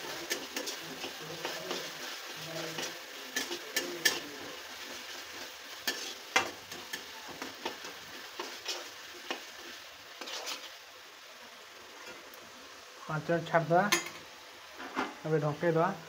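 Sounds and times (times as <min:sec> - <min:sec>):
metal spatula scraping a pan: 0:00.0 - 0:10.8
oil sizzling: 0:00.0 - 0:16.0.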